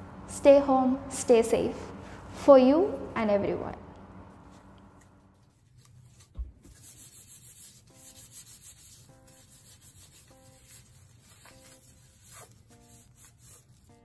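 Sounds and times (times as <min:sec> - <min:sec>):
gloved hands rubbing: 0:05.3 - 0:14.0.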